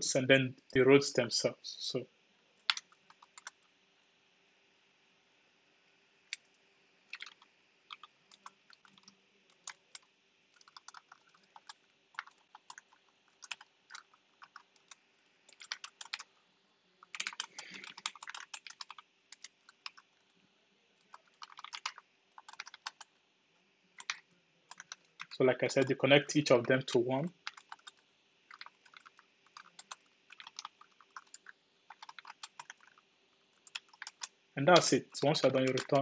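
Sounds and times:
computer keyboard typing: 2.7s - 3.7s, 7.1s - 16.3s, 17.0s - 20.2s, 21.0s - 23.2s, 24.0s - 25.4s, 26.6s - 36.0s.

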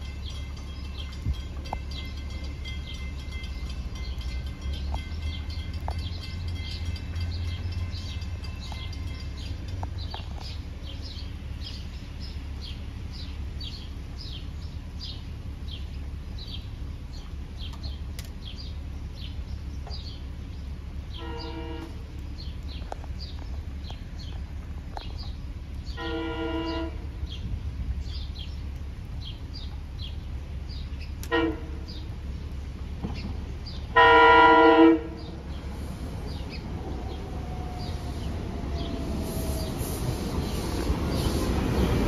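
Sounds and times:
train rumble: 0.0s - 42.0s
train horn chord: 21.1s - 22.1s, 25.9s - 27.2s, 31.2s - 32.0s, 33.9s - 35.4s
bird chirping: 35.1s - 42.0s.

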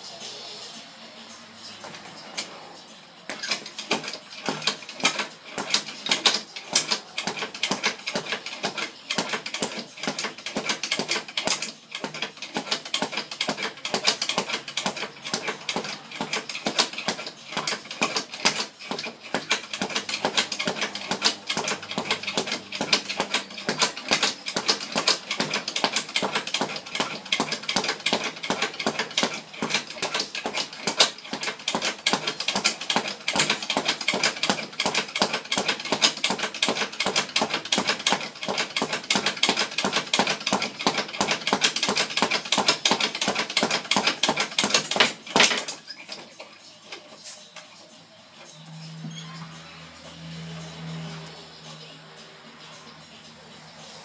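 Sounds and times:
speed bag being punched: 3.3s - 46.2s.

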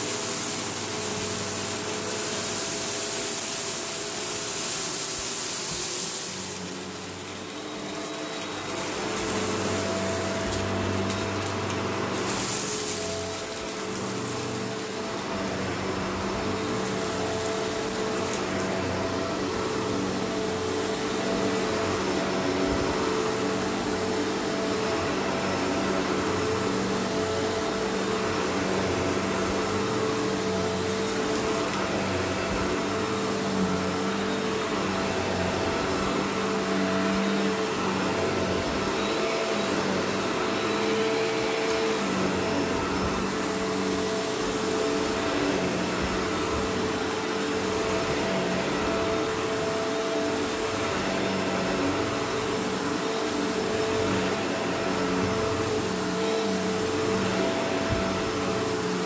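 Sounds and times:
vacuum cleaner running on carpet: 0.0s - 59.0s.

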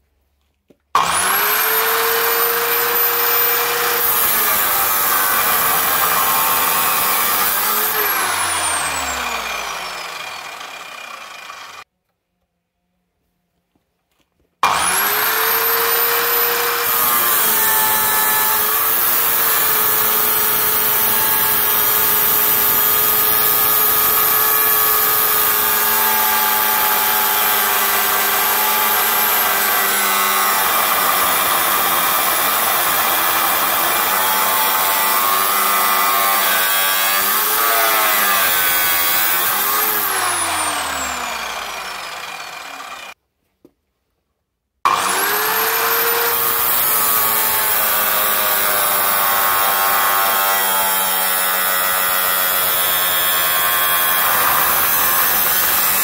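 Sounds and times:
saw motor winding down: 1.0s - 11.8s, 14.6s - 43.2s, 44.9s - 56.0s
cut-off saw cutting steel: 1.0s - 11.9s, 14.6s - 43.2s, 44.9s - 56.0s.

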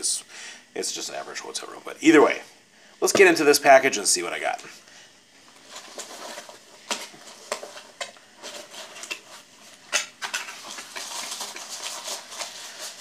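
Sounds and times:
paper packing crinkling: 5.5s - 13.0s.

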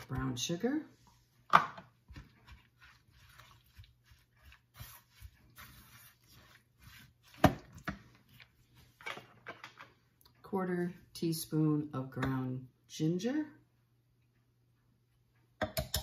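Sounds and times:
wooden spoon scraping: 0.0s - 9.9s.

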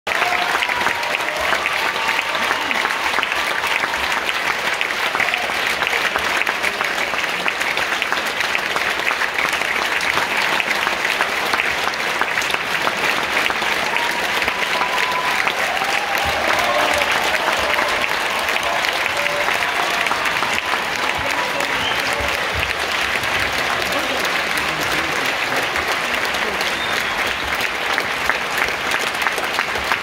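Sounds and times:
large audience applauding: 0.0s - 30.0s.

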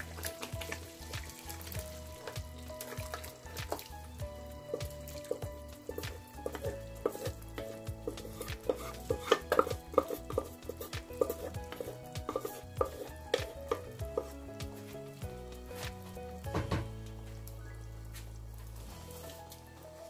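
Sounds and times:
wooden spatula stirring curry: 4.6s - 15.0s
spatula knocking and scraping pan: 4.7s - 14.8s.

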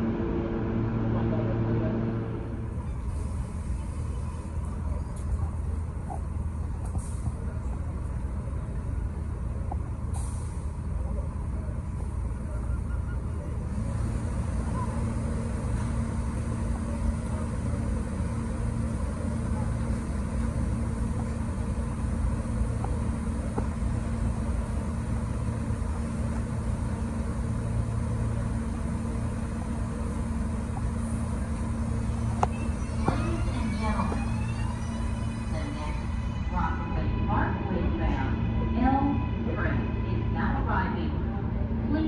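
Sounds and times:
steady tone: 0.0s - 2.9s
subway train humming: 0.0s - 42.0s.

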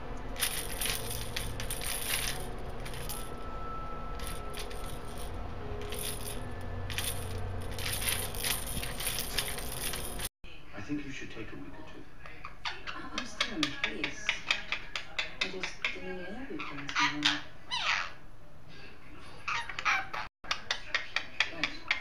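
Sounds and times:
beads rattling in plastic toy: 0.4s - 3.4s, 4.2s - 10.3s.

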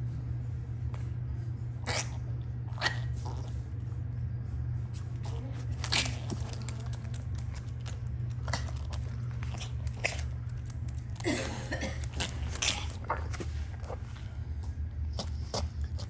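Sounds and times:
dog chewing and licking: 5.2s - 11.3s, 12.0s - 16.0s.

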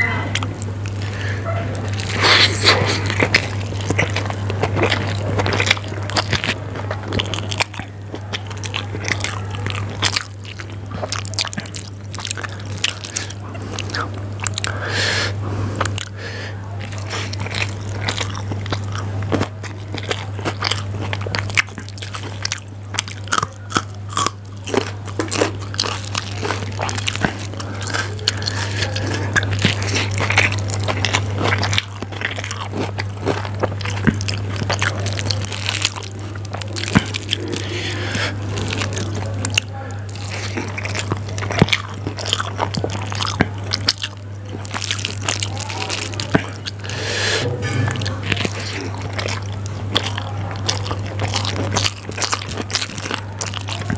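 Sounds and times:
steady low hum: 0.0s - 53.9s
chewing mouth smacks: 0.3s - 53.9s
slurping noodles: 0.9s - 5.6s.

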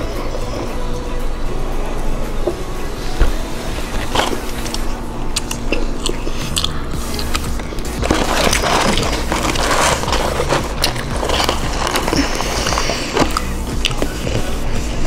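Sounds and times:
chewing and crunching: 3.7s - 15.0s
cardboard carton crinkling: 3.8s - 4.9s, 7.0s - 15.0s.

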